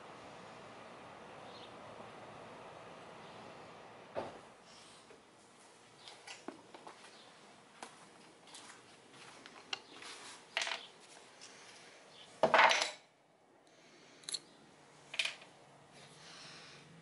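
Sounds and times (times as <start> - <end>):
objects clattering: 10.5 - 10.9, 12.4 - 13.0, 15.1 - 15.5.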